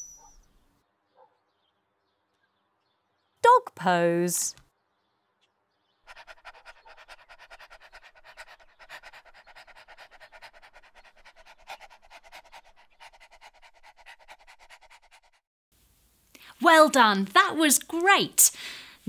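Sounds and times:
dog panting fast: 6.1 - 15.4.

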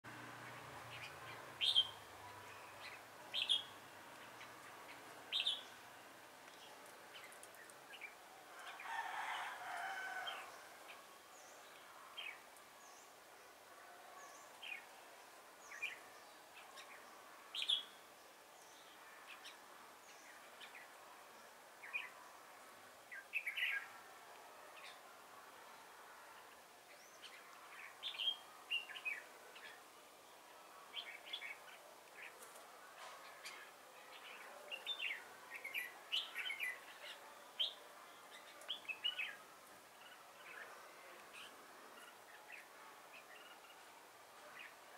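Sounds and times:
rooster crowing: 8.6 - 10.6.

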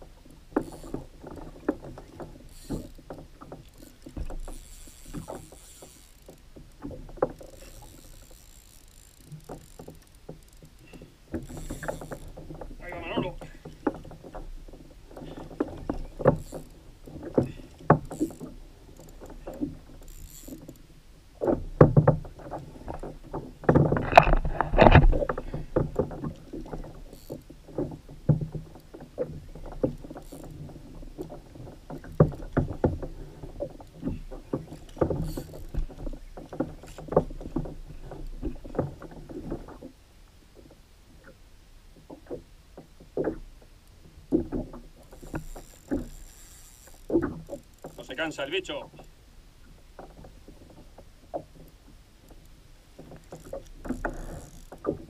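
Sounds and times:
knocks and clicks of fishing gear: 0.2 - 39.9, 42.0 - 49.1, 50.0 - 55.0.

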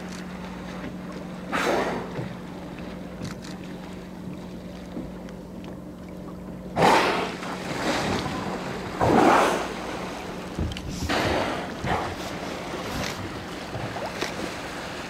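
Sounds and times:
boat hum: 0.0 - 15.0
water wash: 0.0 - 15.0
wind: 0.0 - 15.0
whale breathy blows: 1.5 - 2.2, 6.8 - 10.2, 10.9 - 12.8.

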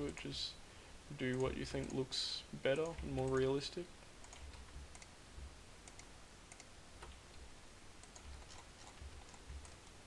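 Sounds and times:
computer mouse clicks: 1.2 - 2.0, 4.2 - 5.1, 5.8 - 7.4, 8.0 - 10.0
keyboard clicks: 4.2 - 5.1, 5.8 - 7.4, 8.0 - 10.0.

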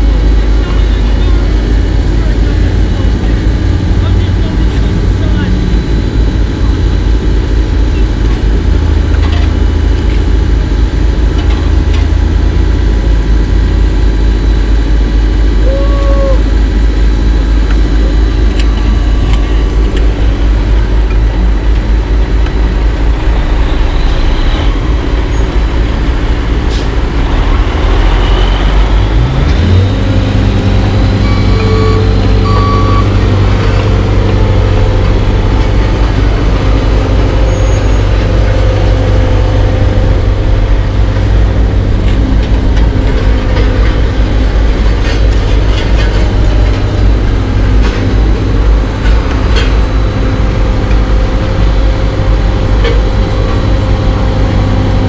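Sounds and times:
heavy diesel engines running: 0.0 - 55.0
engine revving: 11.8 - 55.0.

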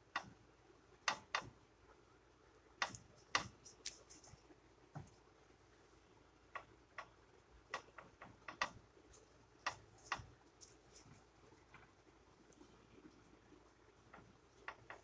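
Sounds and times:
faint clicks and taps: 2.8 - 5.2, 6.5 - 15.0.

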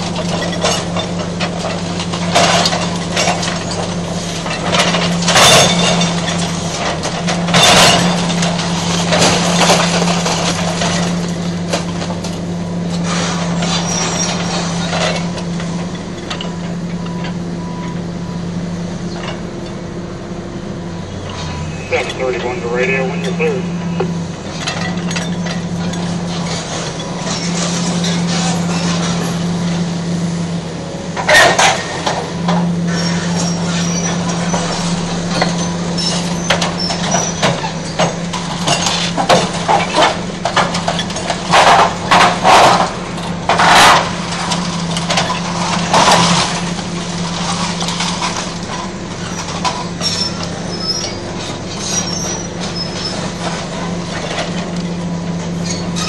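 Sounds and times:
concrete crashing and steel clanking: 0.0 - 17.2, 31.2 - 50.6
excavator engine drone: 0.0 - 56.0.

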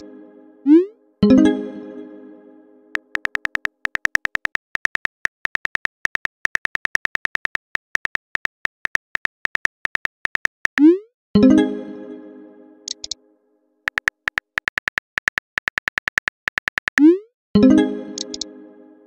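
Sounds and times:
tinny phone key clicks: 3.0 - 10.6, 12.9 - 13.2.

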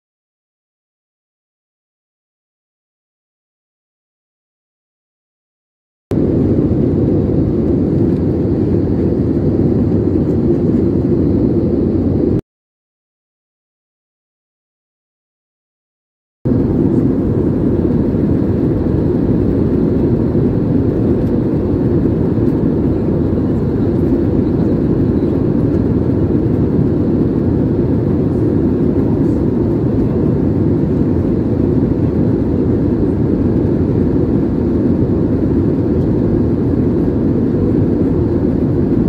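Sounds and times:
jet airliner cabin rushing noise: 16.5 - 39.0.

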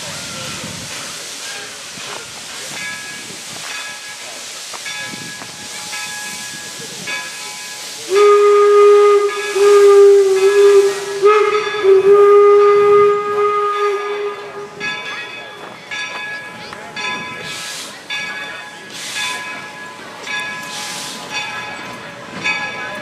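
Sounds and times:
steam hissing: 0.0 - 23.0
steam whistle blasts: 8.1 - 14.8.

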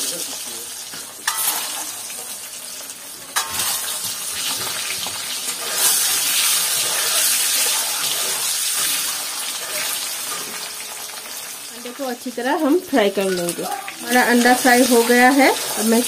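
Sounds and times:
eggs sizzling in hot oil: 0.0 - 16.0
spatula stirring: 1.2 - 2.4, 3.3 - 11.6.

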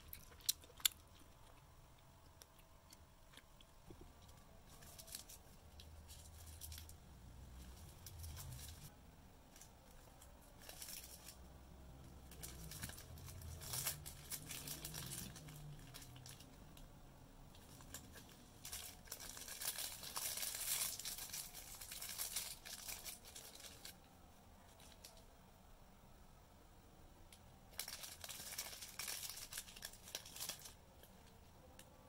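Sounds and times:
plastic bag crinkling: 3.9 - 8.9, 9.5 - 11.5, 12.1 - 16.8, 17.6 - 24.1, 27.7 - 31.3.

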